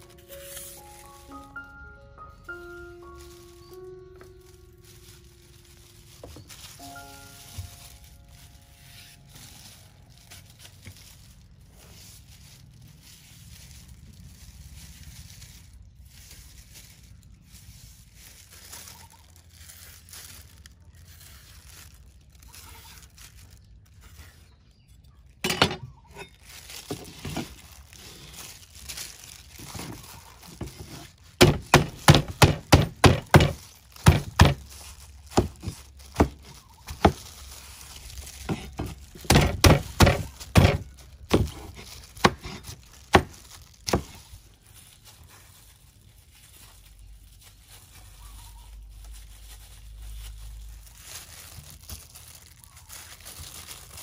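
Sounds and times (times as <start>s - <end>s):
faint outdoor background: 0.0s - 54.0s
knife chopping on wooden board: 31.4s - 34.6s, 38.5s - 42.6s.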